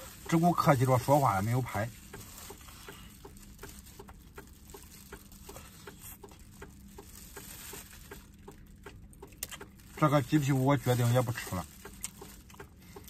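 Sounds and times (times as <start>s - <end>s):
man chewing wetly: 2.0s - 10.1s, 11.6s - 13.0s.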